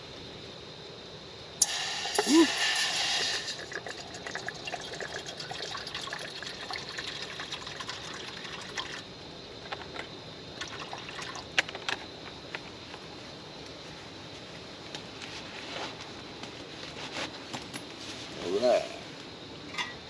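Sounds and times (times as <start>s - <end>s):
water trickling into a pot: 1.6s - 9.1s, 10.6s - 11.6s.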